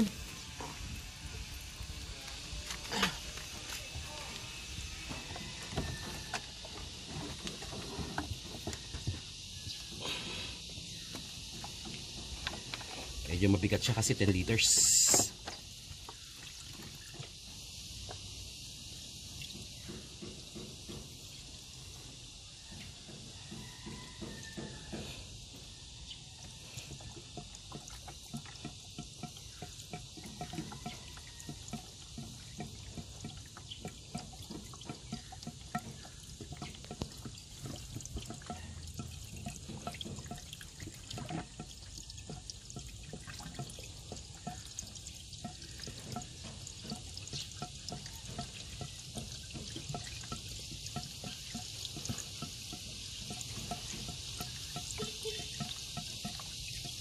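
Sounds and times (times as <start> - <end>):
liquid pouring and gurgling: 10.6 - 18.3, 26.4 - 57.0.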